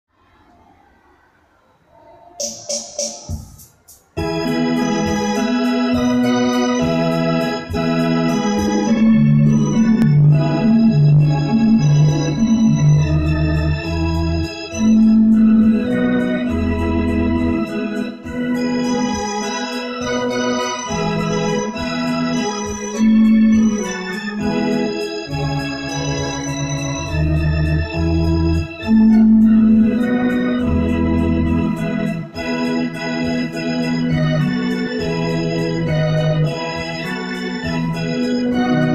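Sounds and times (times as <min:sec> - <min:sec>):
keyboard organ chords: 0:01.9 - 0:38.9
deep bass line: 0:08.7 - 0:17.8, 0:25.5 - 0:32.3.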